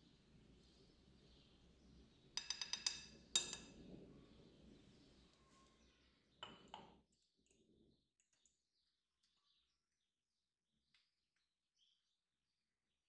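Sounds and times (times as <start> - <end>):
wooden spoon tapping ceramic bowl: 2.4 - 3.7.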